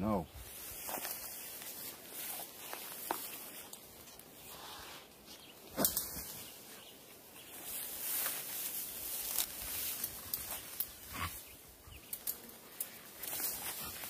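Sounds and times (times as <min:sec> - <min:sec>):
footsteps through tall grass: 0:00.4 - 0:04.3, 0:07.4 - 0:11.5, 0:12.7 - 0:14.0.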